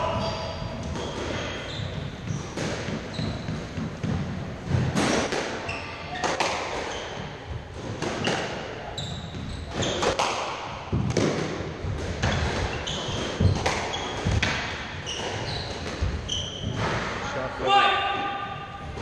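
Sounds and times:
shoes squeaking on wooden floor: 0.0s - 4.7s, 5.6s - 10.2s, 12.2s - 17.2s
racket striking squash ball: 0.0s - 17.2s.

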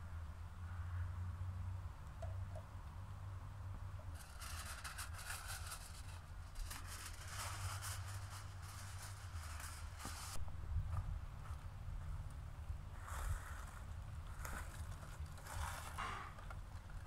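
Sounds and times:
steady low rumble: 2.8s - 15.8s
aluminium foil crinkling: 4.2s - 10.4s.

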